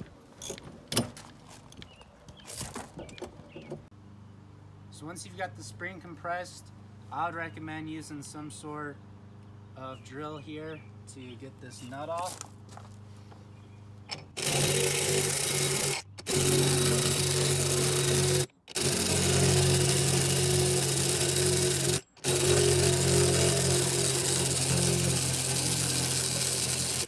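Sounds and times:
cordless drill spinning: 14.3s - 27.0s.

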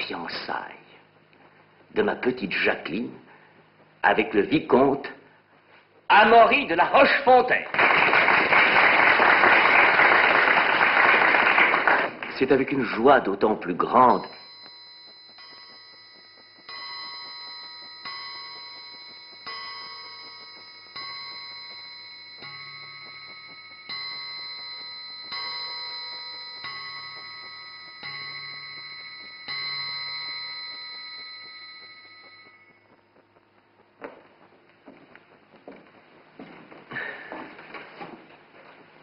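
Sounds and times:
clock chime striking: 13.9s - 33.2s.

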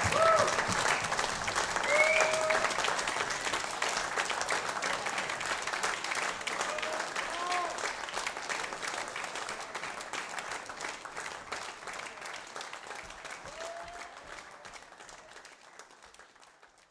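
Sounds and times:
audience applauding: 0.0s - 16.9s
high call from crowd: 6.6s - 7.9s.

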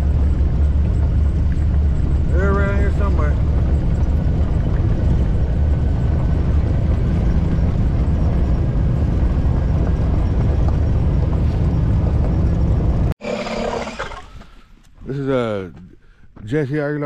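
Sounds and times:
utility vehicle engine rumble: 0.0s - 13.2s.

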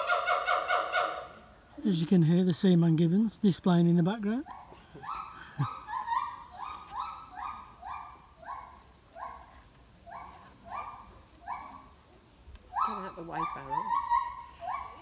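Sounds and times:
gibbons barking hoots: 0.0s - 1.4s, 4.5s - 8.7s, 12.7s - 15.0s.

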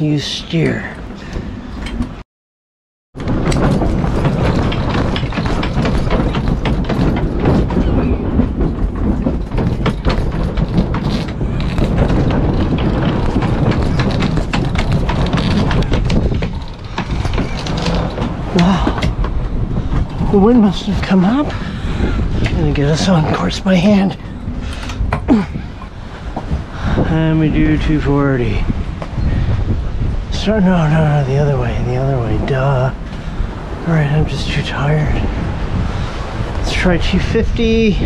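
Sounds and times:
boat gear rattling: 0.0s - 2.2s, 3.2s - 38.0s
strong wind and sea rushing: 0.0s - 2.2s, 3.2s - 38.0s
wind rumble on microphone: 3.2s - 38.0s.

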